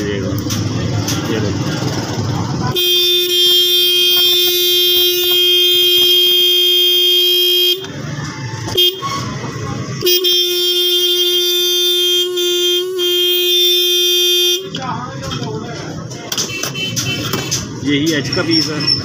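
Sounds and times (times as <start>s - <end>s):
electric car horn blaring: 2.7s - 8.0s, 8.7s - 9.3s, 10.0s - 14.8s.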